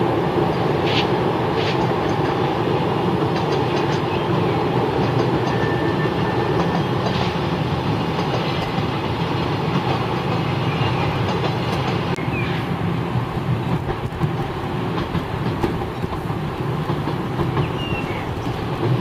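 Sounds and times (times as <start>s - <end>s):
train rumble: 0.0s - 19.0s
wheels clicking over rail joints: 13.6s - 19.0s.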